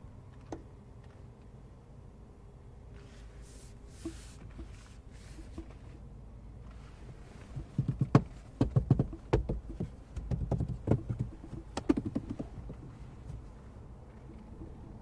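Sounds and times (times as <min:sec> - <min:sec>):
knuckles knocking on plastic trim: 0:07.6 - 0:13.0.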